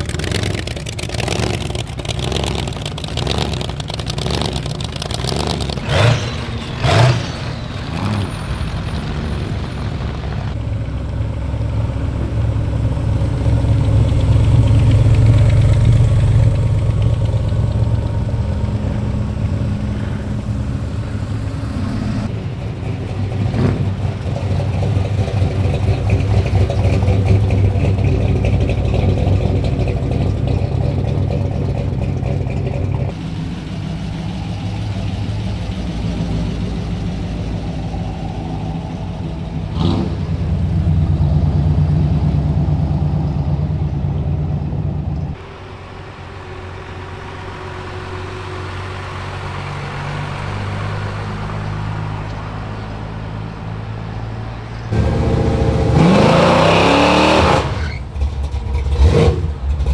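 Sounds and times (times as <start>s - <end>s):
car engines rumbling past: 0.0s - 59.9s.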